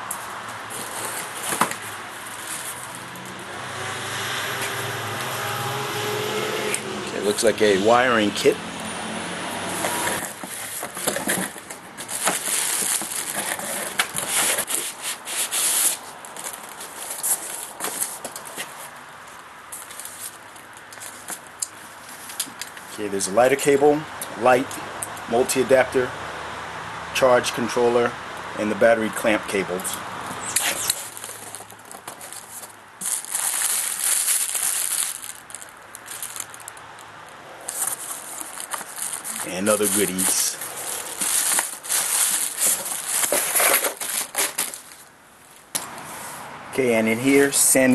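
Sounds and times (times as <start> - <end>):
cardboard rubbing and scraping: 0.7 - 3.0, 9.7 - 18.9, 37.7 - 45.0
small knocks and crackles: 10.0 - 14.8, 30.9 - 45.9
plastic wrap crinkling: 10.2 - 18.8, 19.8 - 21.4, 30.6 - 37.1, 37.7 - 45.7.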